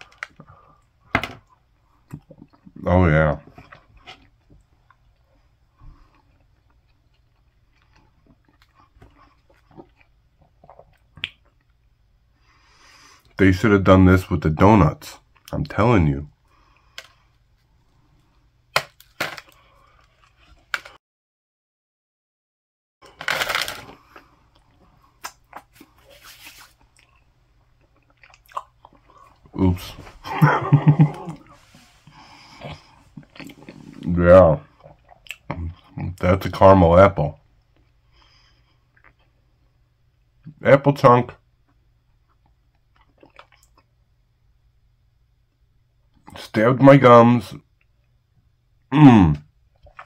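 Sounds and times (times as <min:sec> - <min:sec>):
person chewing: 0:03.5 - 0:11.8, 0:23.3 - 0:29.5, 0:30.8 - 0:34.1, 0:34.7 - 0:36.0, 0:42.3 - 0:43.9, 0:49.7 - 0:50.0.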